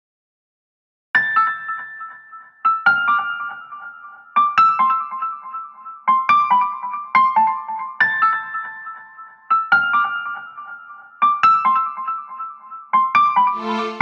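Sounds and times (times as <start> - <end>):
solo piano melody: 13.2 - 14.0.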